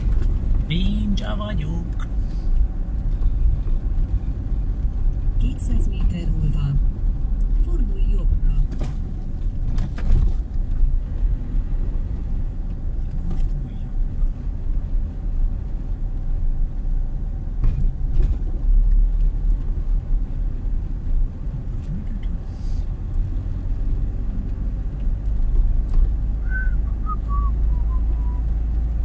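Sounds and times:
car engine and tyre rumble: 0:00.0 - 0:29.0.

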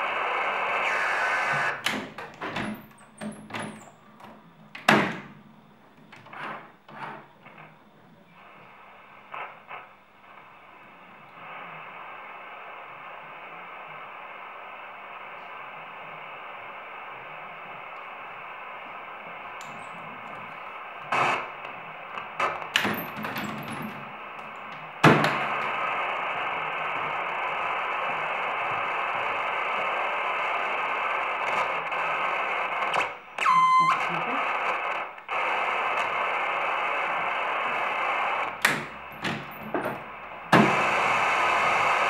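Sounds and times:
radio static hiss: 0:00.0 - 0:42.0
clicks and crackles: 0:19.4 - 0:41.0.

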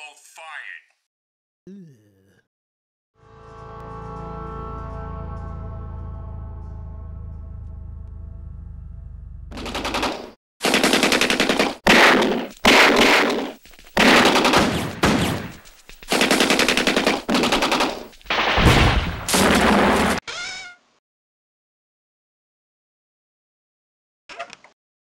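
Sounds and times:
rising whine: 0:03.2 - 0:09.5
automatic gunfire bursts: 0:09.5 - 0:15.5, 0:16.1 - 0:18.6.

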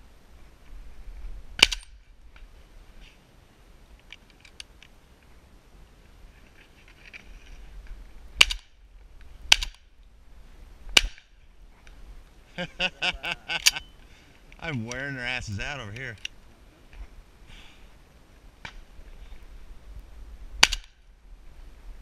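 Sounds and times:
shotgun shots: 0:20.6 - 0:21.0.

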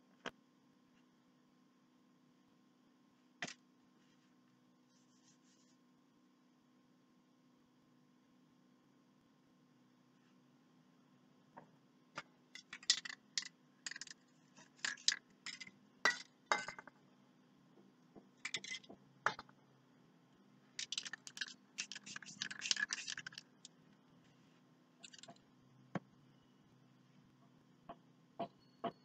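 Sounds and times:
paint caps clinking: 0:20.8 - 0:23.7
blade scratching paint on paper: 0:21.3 - 0:23.5.

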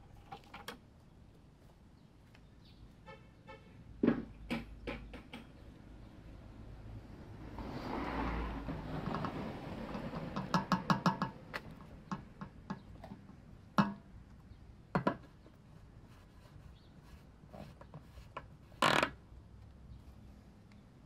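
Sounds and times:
knocks: 0:04.0 - 0:05.6, 0:10.0 - 0:12.9.

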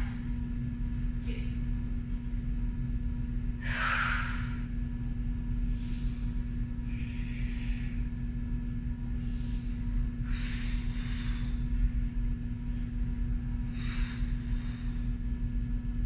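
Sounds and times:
low mechanical hum: 0:00.0 - 0:16.0
person breathing heavily: 0:03.6 - 0:04.8, 0:05.6 - 0:08.3, 0:09.0 - 0:13.0, 0:13.6 - 0:15.4.

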